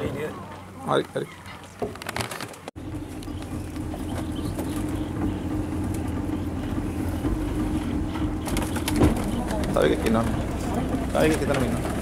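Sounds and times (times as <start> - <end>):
outboard motor running: 2.7 - 12.0
low rumble: 2.8 - 12.0.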